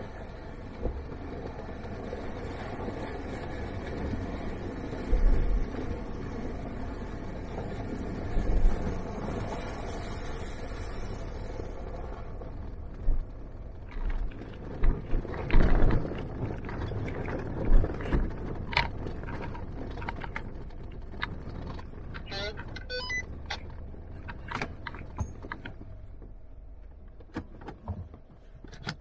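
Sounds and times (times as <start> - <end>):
vehicle engine and road noise: 0.0 - 29.0
vehicle thumping and rattling over ruts: 0.0 - 29.0.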